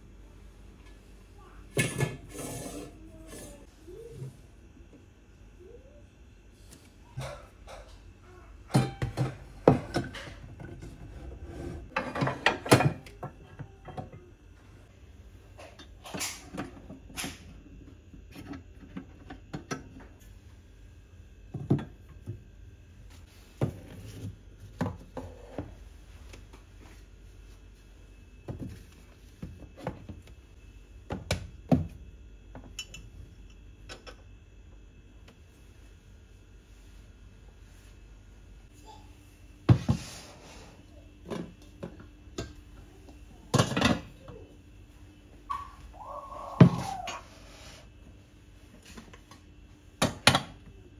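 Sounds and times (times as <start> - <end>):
cookware clanking against wire rack: 8.7 - 10.4.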